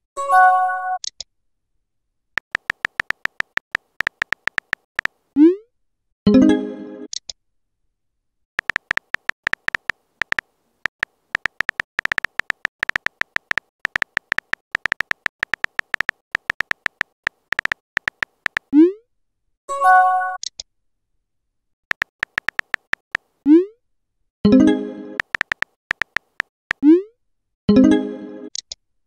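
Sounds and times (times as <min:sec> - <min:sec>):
phone keyboard typing clicks: 0:02.4 - 0:05.2, 0:08.6 - 0:18.7, 0:21.9 - 0:23.3, 0:25.2 - 0:26.8.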